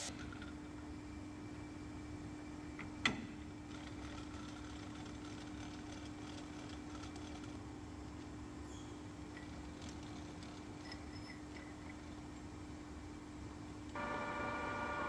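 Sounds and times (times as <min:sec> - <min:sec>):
steady hum: 0:11.9 - 0:15.0.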